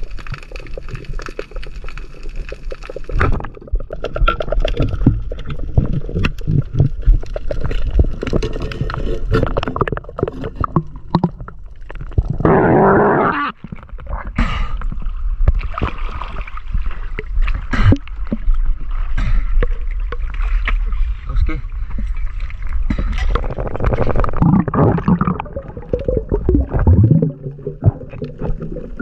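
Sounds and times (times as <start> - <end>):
underwater clicks and knocks: 0.0 - 12.4, 22.9 - 29.0
gurgling water: 0.0 - 29.0.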